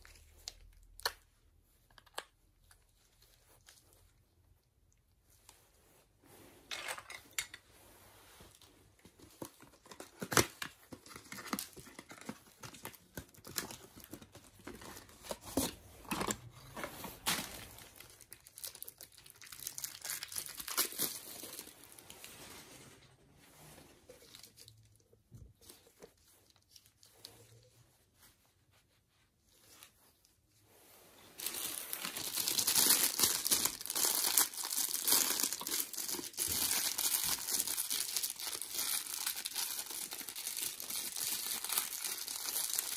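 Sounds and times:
plastic bag crinkling and tearing: 8.6s - 22.6s, 31.4s - 42.9s.

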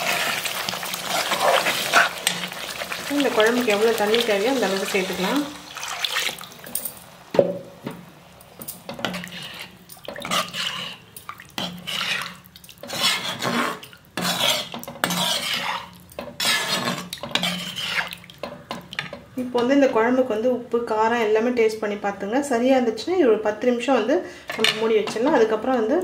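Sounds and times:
ladle scraping metal pan: 8.9s - 19.2s.

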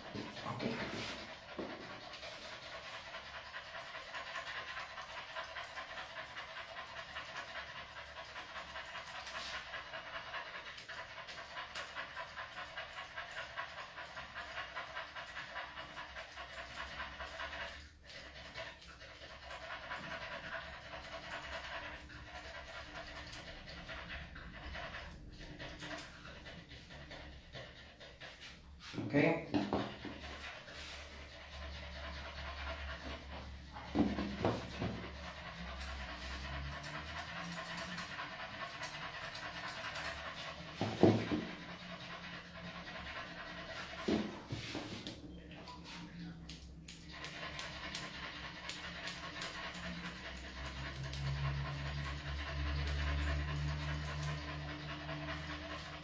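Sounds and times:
dog panting: 0.0s - 56.0s.

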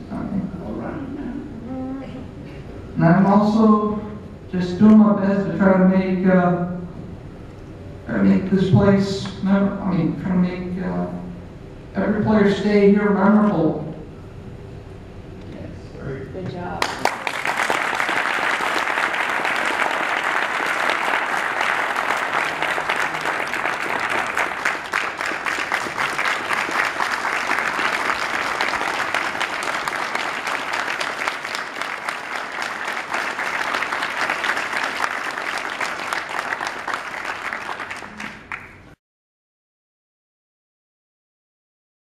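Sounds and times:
audience applauding: 16.8s - 39.0s.

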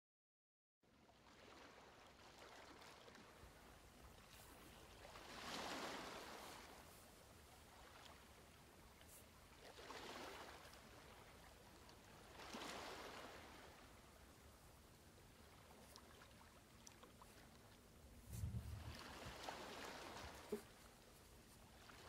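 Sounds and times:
faint steady hiss: 3.0s - 22.0s
soft rushing noise: 18.1s - 20.6s.

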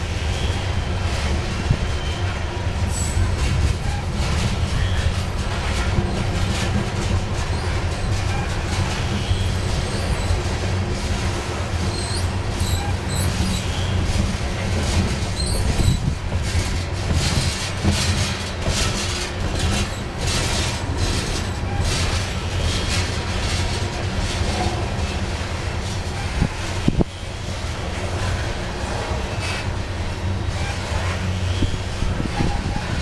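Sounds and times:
train wheels clattering on rails: 0.0s - 33.0s
high wheel squeals: 1.9s - 6.3s, 7.4s - 10.4s, 11.8s - 14.2s, 15.2s - 16.1s, 29.1s - 33.0s.

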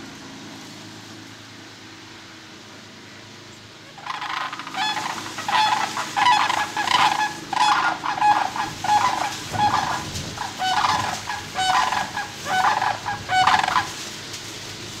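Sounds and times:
cranes calling with rattling calls: 3.8s - 14.0s.

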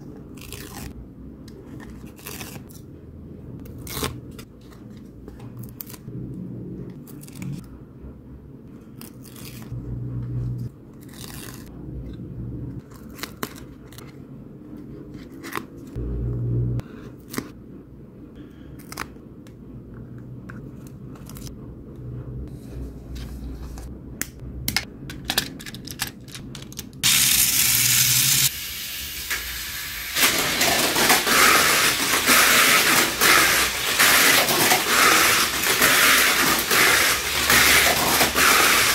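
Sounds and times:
low hum: 9.7s - 10.9s, 16.0s - 18.6s.

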